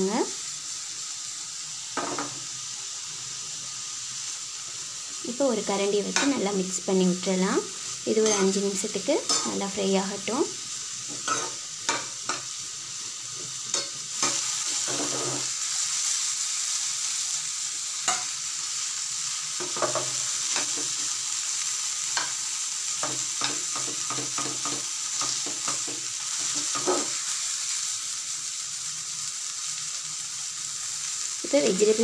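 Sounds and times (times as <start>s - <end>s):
vegetables sizzling in oil: 0.0s - 32.0s
metal spoon scraping pan: 8.1s - 8.6s, 9.2s - 9.7s, 11.1s - 12.4s, 13.7s - 15.5s, 23.0s - 27.2s.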